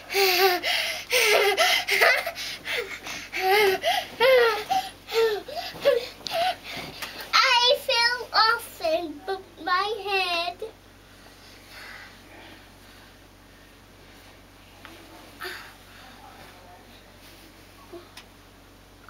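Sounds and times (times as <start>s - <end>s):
toddler giggling: 0.1s - 6.6s.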